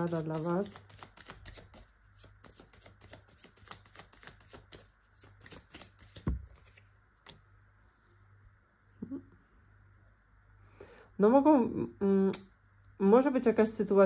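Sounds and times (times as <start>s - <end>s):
cards being shuffled: 0.0s - 7.4s.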